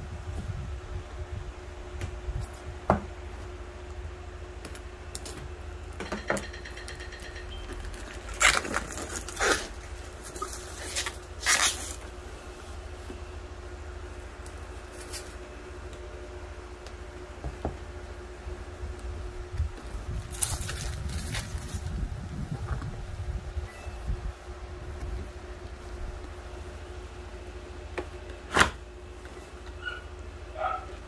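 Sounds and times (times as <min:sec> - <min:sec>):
steady low hum: 0:00.0 - 0:31.0
plastic wrap crinkling and tearing: 0:07.8 - 0:12.1, 0:20.2 - 0:22.0.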